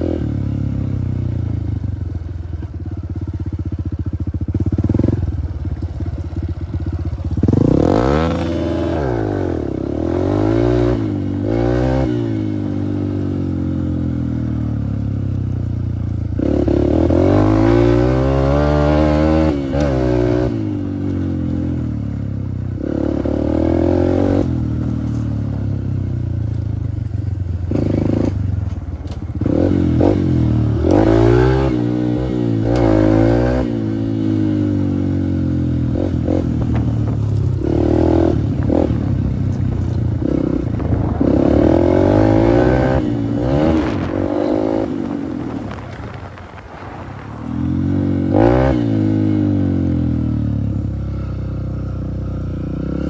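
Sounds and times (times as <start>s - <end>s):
dirt bike engine revving: 4.4s - 5.9s, 6.6s - 14.7s, 16.3s - 22.0s, 22.8s - 25.2s, 27.6s - 28.6s, 29.3s - 51.0s.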